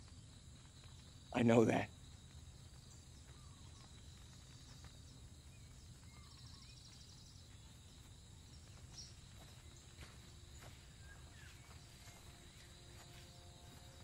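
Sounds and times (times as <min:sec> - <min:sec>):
bird chirps: 0:02.8 - 0:14.0.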